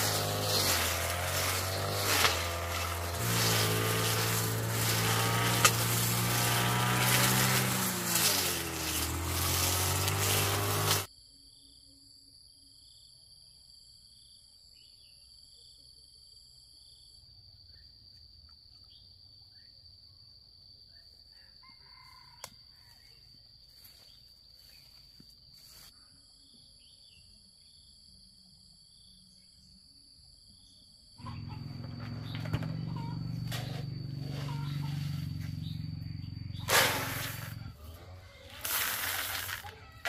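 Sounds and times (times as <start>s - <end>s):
high insect drone: 0.0s - 13.1s, 23.2s - 40.0s
distant rooster crowing: 21.3s - 23.3s, 31.2s - 35.3s.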